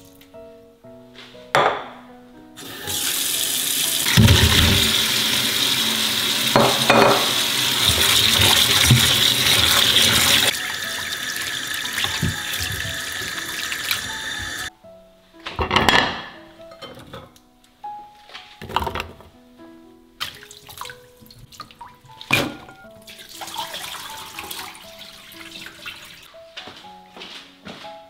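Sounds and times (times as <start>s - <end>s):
tap running into steel sink: 4.0s - 5.1s, 6.4s - 14.7s.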